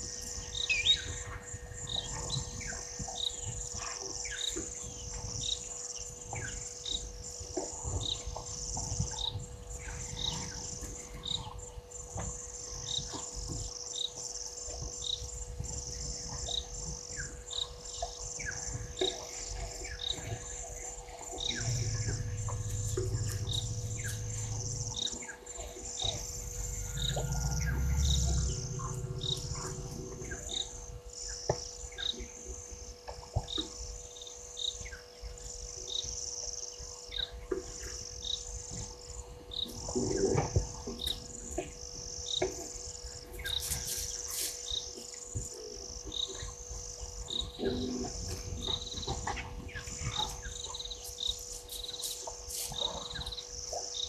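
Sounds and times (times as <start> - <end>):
insects chirping: 21.3 - 31.3
low rumble: 21.4 - 25.2, 26.0 - 31.0.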